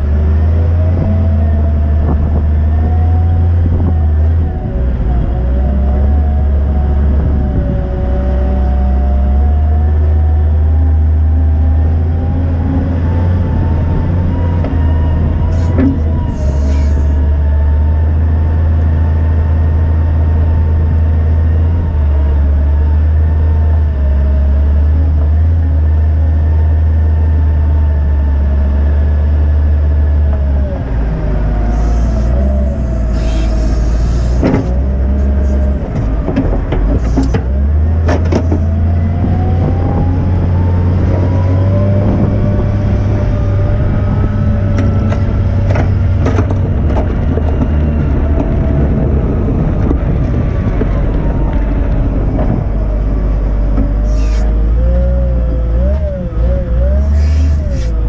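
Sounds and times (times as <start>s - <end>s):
diesel engine droning under load: 0.0s - 58.0s
engine whine: 0.0s - 58.0s
knocks and clatters: 34.4s - 38.8s, 44.7s - 48.8s.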